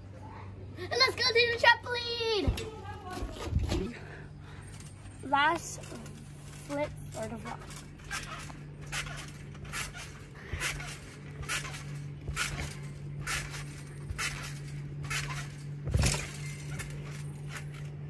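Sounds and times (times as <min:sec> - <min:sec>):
trampoline springs bouncing: 0:00.8 - 0:18.0
body landing on trampoline thud: 0:07.6 - 0:17.9.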